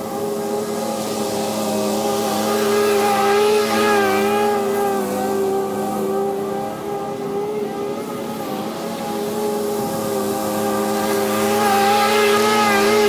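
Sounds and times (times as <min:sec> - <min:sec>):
mower engine and blades cutting grass: 0:00.0 - 0:13.0.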